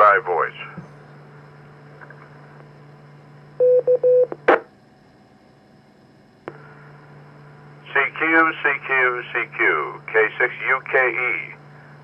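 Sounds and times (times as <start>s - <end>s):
steady low hum: 0.0s - 12.0s
radio courtesy tone beeps: 3.6s - 4.3s.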